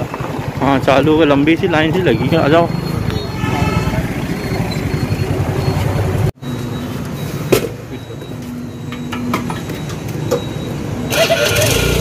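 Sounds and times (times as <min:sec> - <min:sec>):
street traffic: 0:00.0 - 0:12.0
vehicle engine and road noise: 0:00.0 - 0:12.0.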